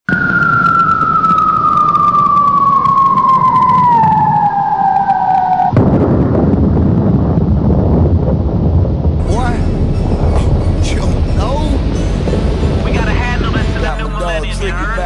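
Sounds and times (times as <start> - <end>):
siren-like tone sliding down: 0.1 - 5.8
low rumble: 0.1 - 15.0
loud full noise: 9.2 - 14.1.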